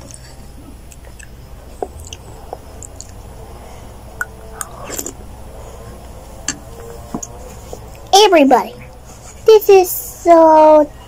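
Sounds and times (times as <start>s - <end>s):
quiet chewing: 0.0s - 3.3s.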